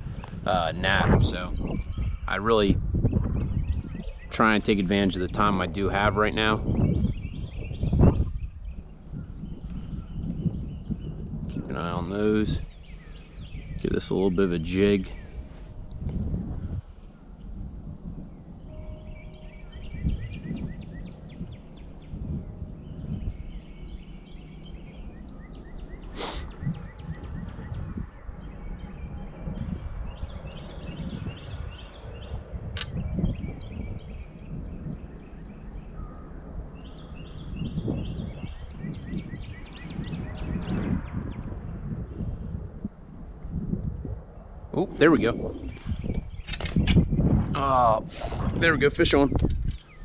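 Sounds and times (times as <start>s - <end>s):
wind rumble on microphone: 0.0s - 50.0s
sharp clicks: 32.8s - 33.0s.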